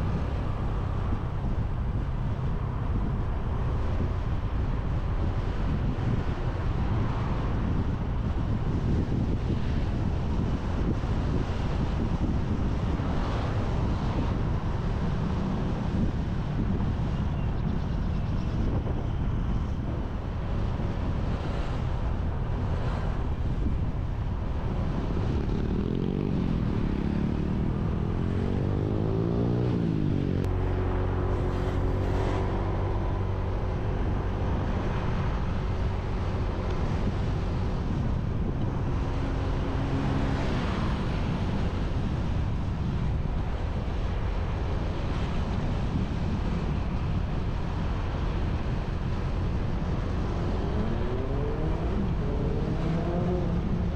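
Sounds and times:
wind over microphone: 0:00.0 - 0:53.9.

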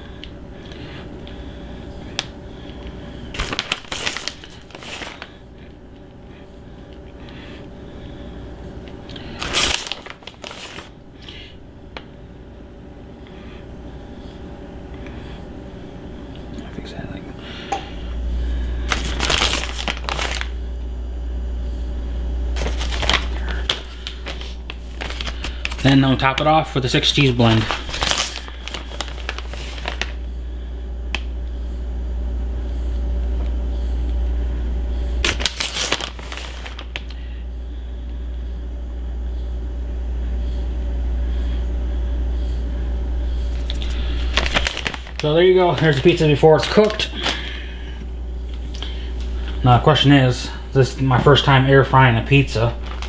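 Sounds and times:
low steady hum: 0:00.0 - 0:53.0
plastic bag crinkling: 0:03.3 - 0:05.7, 0:09.1 - 0:11.4, 0:18.8 - 0:20.6, 0:22.6 - 0:30.3, 0:35.2 - 0:37.3, 0:43.4 - 0:50.0, 0:52.3 - 0:53.0.

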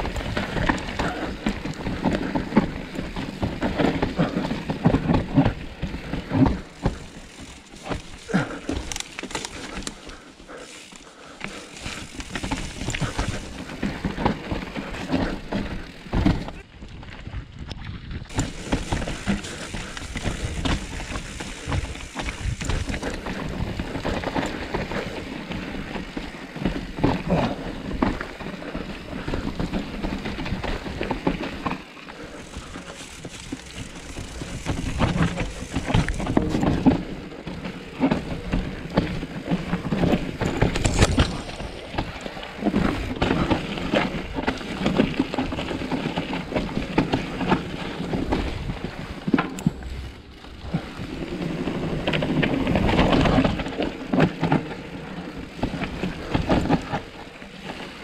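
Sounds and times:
mountain bike rolling and rattling: 0:00.0 - 0:58.0
bike knocks and clatter: 0:11.8 - 0:16.6, 0:18.3 - 0:25.1, 0:32.5 - 0:51.0.

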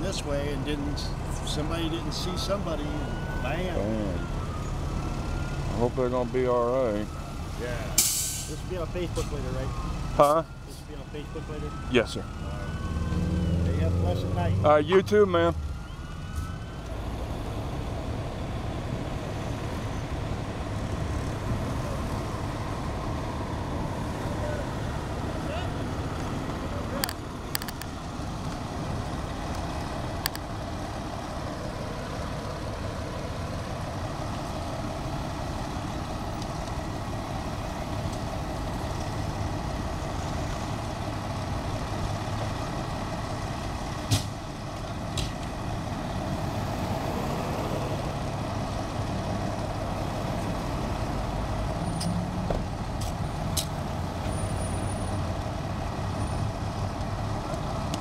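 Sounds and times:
diesel engine idling: 0:16.7 - 0:58.0.

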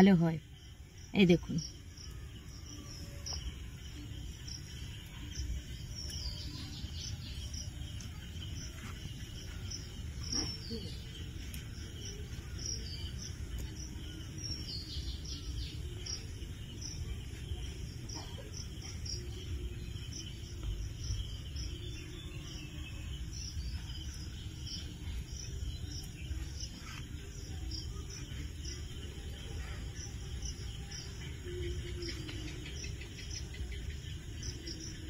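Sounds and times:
cricket chirping: 0:00.0 - 0:35.0.

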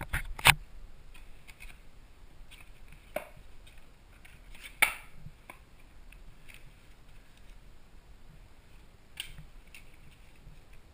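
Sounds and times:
paper rustling: 0:08.7 - 0:10.9.

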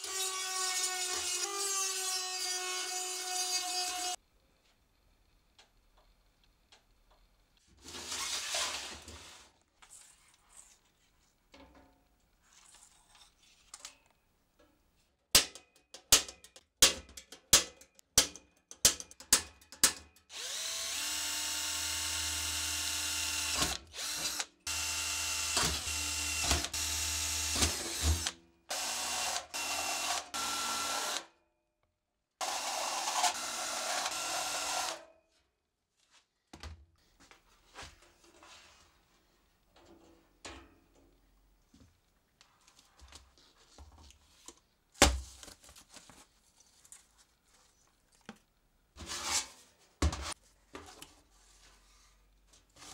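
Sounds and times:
sharp metal clicks and knocks: 0:15.4 - 0:20.3
cordless drill drilling into metal: 0:20.3 - 0:31.3, 0:32.4 - 0:35.0.

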